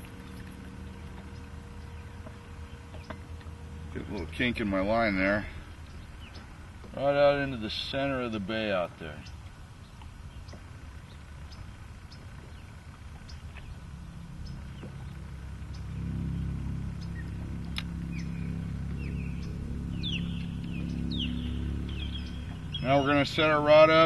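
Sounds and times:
low engine hum: 0.0 - 24.0
bird chirps: 14.4 - 23.7.

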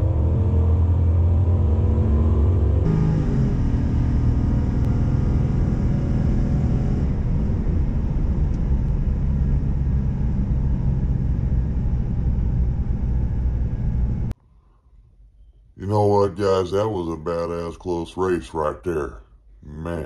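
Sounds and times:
road noise: 0.0 - 14.3
engine drone inside vehicle: 0.0 - 14.4.

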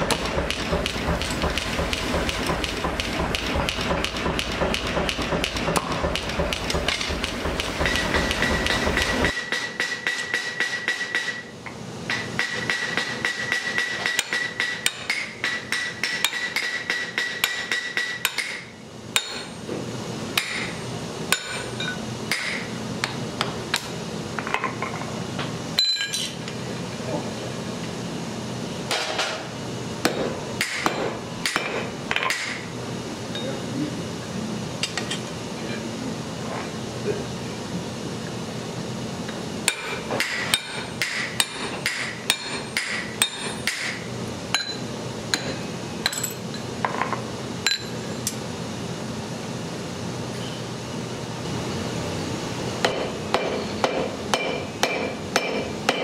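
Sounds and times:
hammer striking steel on anvil: 3.9 - 11.5, 12.1 - 19.5, 20.4 - 23.5, 25.8 - 26.4, 30.0 - 32.6, 39.6 - 46.4, 52.8 - 56.0.

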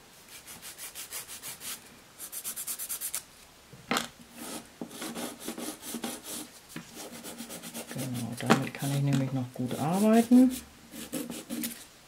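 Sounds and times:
nail file rubbing on nails: 0.3 - 3.2, 4.4 - 8.3.

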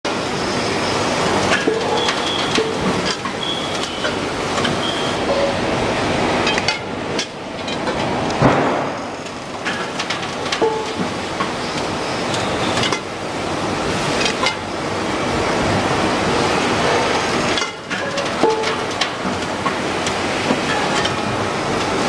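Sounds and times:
metal pans clanking: 17.6 - 19.4.

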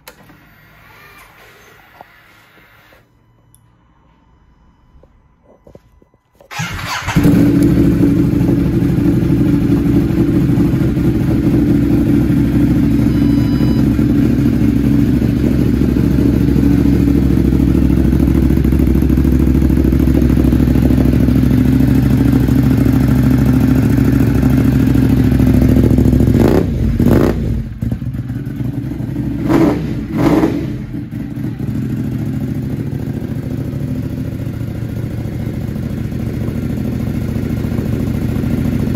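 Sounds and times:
motorcycle engine starting and idling: 5.8 - 38.9
throttle blips: 12.6 - 14.3.

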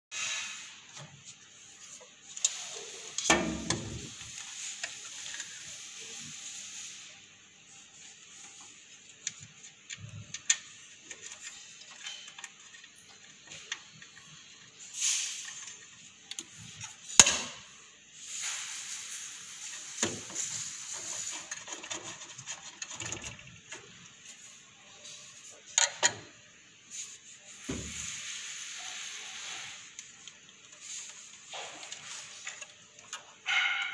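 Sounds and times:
metal scraping and rubbing: 0.1 - 8.8, 18.2 - 26.0.

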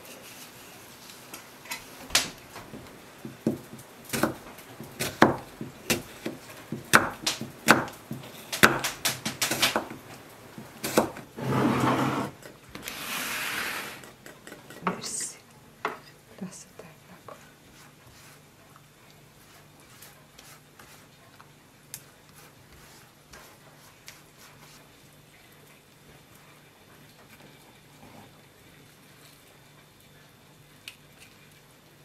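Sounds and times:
rough scraping: 10.8 - 14.1
knife cutting on wooden board: 10.8 - 14.8.

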